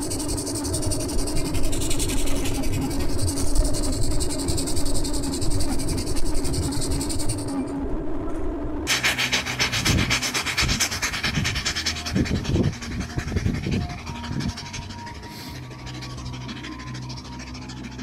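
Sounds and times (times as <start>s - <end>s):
steam engine chuffing: 8.9s - 18.0s
steam hissing: 8.9s - 18.0s.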